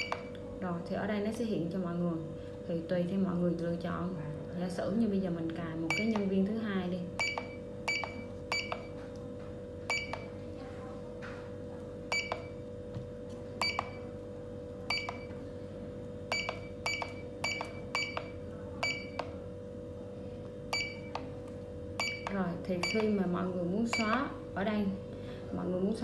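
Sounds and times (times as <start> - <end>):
keypad beeps: 0.0 - 0.3, 5.9 - 6.3, 7.2 - 9.0, 9.9 - 10.4, 12.1 - 12.6, 13.6 - 14.1, 14.9 - 15.4, 16.3 - 19.4, 20.7 - 21.4, 22.0 - 23.2, 23.9 - 24.2.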